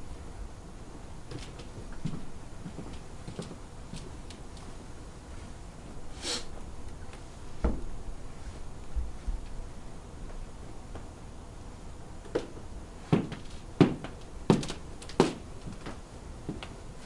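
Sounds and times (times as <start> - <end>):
footsteps on stage floor: 1.3 - 4.8, 13.1 - 16.8
low thump: 7.6 - 7.9.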